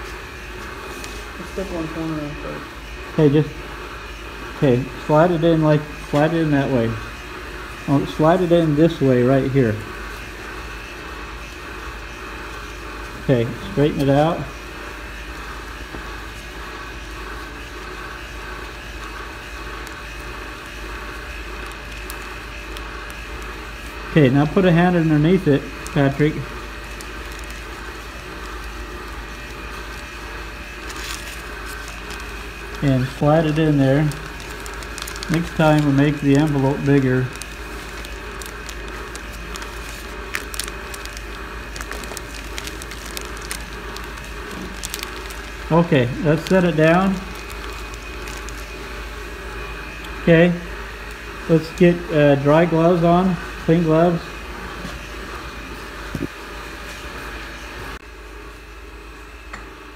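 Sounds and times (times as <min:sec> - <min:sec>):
mechanical drone and hiss: 0:00.0 - 0:56.4
steady low hum: 0:00.0 - 0:59.9
plastic film crinkling: 0:19.0 - 0:52.8.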